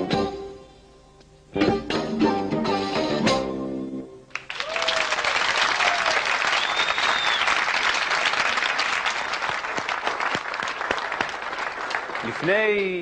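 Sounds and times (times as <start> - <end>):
audience applause: 4.3 - 13.0
high whistle from crowd: 6.5 - 7.6.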